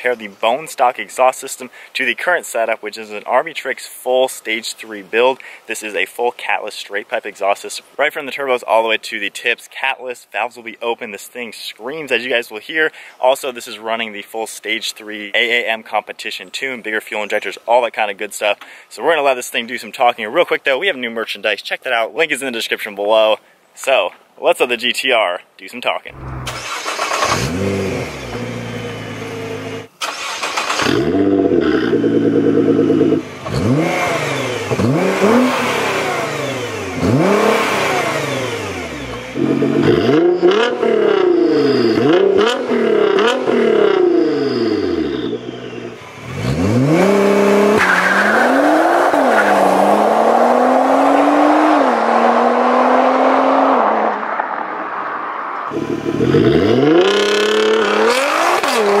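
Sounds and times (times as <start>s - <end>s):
car accelerating through gears: 26.1s - 29.9s, 30.8s - 54.4s, 55.7s - 59.0s
car exhaust revving: 26.1s - 29.9s, 30.8s - 54.4s, 55.7s - 59.0s.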